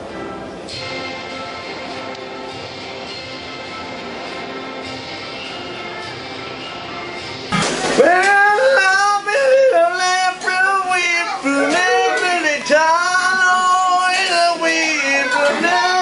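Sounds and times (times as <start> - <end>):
person singing long notes: 8.0 - 16.0.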